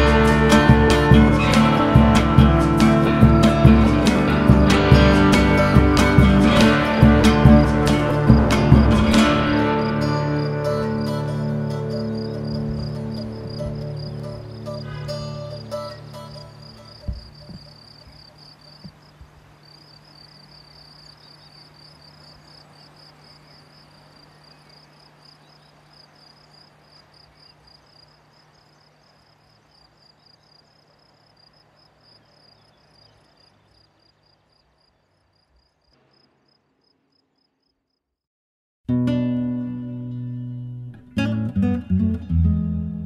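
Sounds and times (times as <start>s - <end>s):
low thumps: 0.0s - 10.1s
insects chirping trill: 0.0s - 38.0s.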